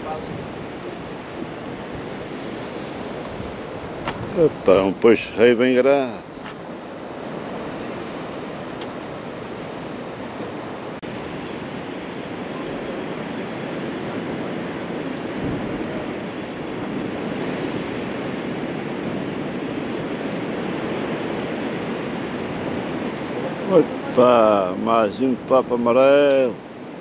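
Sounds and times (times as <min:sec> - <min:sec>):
wind on microphone: 0:00.0 - 0:25.5
waves on rocky shore: 0:00.0 - 0:27.0.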